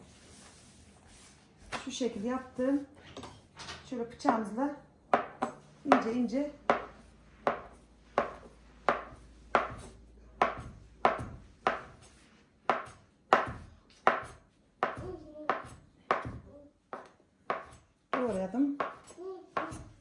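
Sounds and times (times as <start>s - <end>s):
knife slicing dough: 6.7s - 20.0s.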